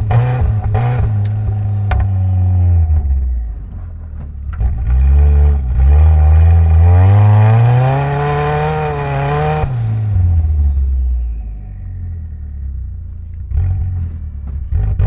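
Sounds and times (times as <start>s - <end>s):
high turbo whistle: 0.0s - 2.7s, 5.6s - 12.4s
car engine revving: 0.0s - 15.0s.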